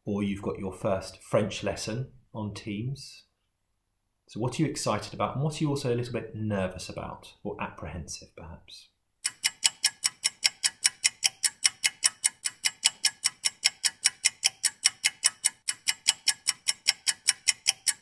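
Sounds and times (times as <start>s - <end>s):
clock ticking quickly: 9.2s - 18.0s.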